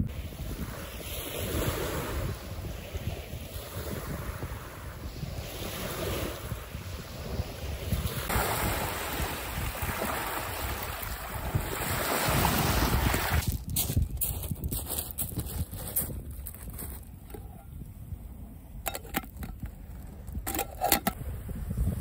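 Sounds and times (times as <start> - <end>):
sea waves washing onto beach: 0.0 - 13.6
wind buffeting microphone: 0.0 - 22.0.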